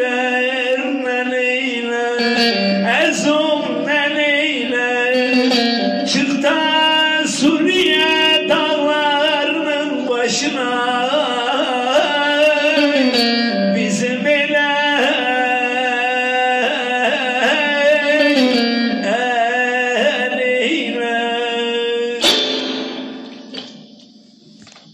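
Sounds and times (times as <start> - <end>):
man singing folk song: 0.0 - 22.4
plucked string accompaniment: 2.2 - 10.5, 11.3 - 20.4, 22.2 - 24.0.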